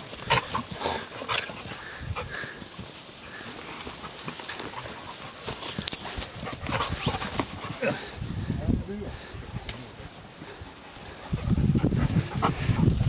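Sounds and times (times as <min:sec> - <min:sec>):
dogs snarling and yelping: 0:00.0 - 0:02.7, 0:03.4 - 0:08.2, 0:10.1 - 0:13.0
paws scuffling on ground: 0:00.0 - 0:08.2, 0:10.0 - 0:13.0.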